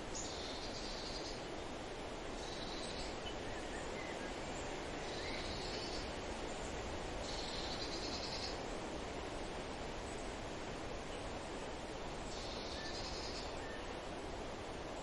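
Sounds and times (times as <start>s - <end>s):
steady hiss: 0.0s - 15.0s
faint bird chirps: 2.4s - 4.3s, 7.2s - 8.6s.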